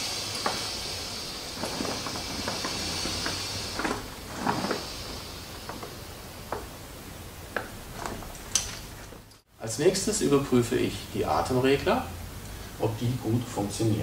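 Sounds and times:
air hissing from hose valve: 0.0 - 9.0.

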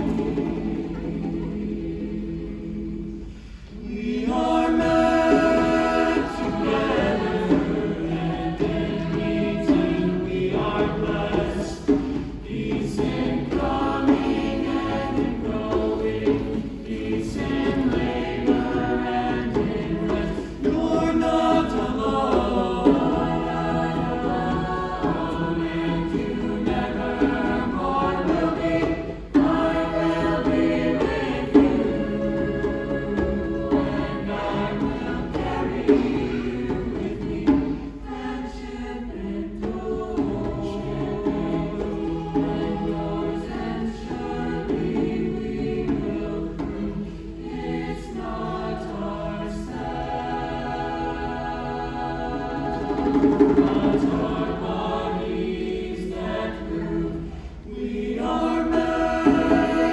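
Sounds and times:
mixed choir singing in harmony: 0.0 - 59.9
djembe tapping: 4.8 - 38.0, 52.4 - 54.6.

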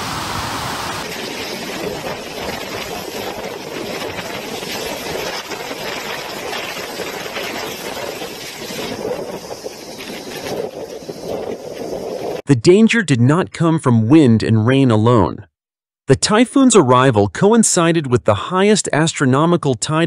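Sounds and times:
storm surf breaking: 0.0 - 12.4
strong wind: 0.0 - 12.4.

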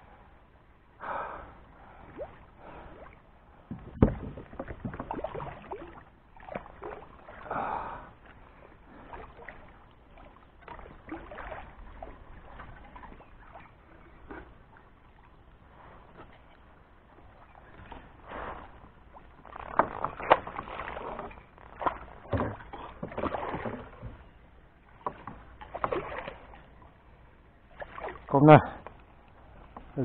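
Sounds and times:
knock on plastic kayak: 3.7 - 5.0.

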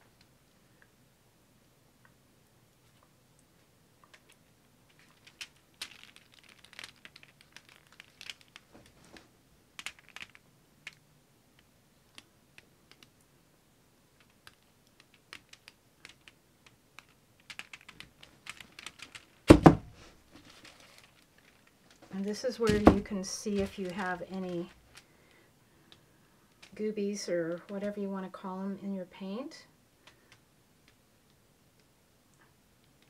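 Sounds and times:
canvas frame knocking on table: 19.5 - 19.9.

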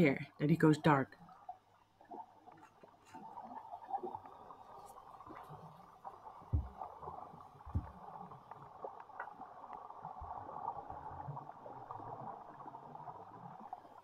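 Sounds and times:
low thumps: 6.5 - 8.1
faint ticks: 7.6 - 11.0.

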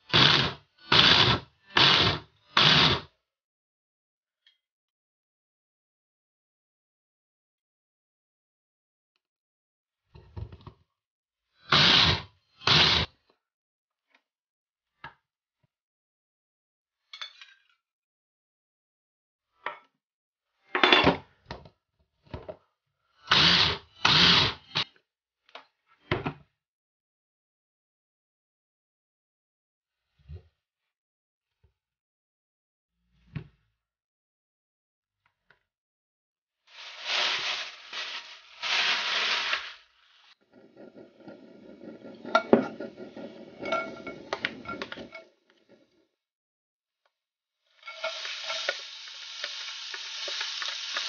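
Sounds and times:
plastic bag crinkling: 36.7 - 40.2
faint sizzle: 36.7 - 40.4, 47.8 - 51.0.

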